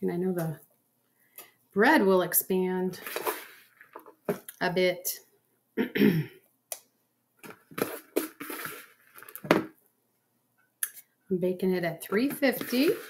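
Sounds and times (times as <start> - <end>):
dough handling rustles: 12.2 - 13.0.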